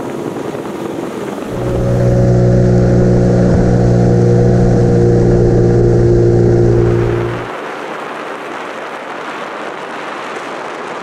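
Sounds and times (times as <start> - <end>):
outboard motor running: 1.5 - 7.5.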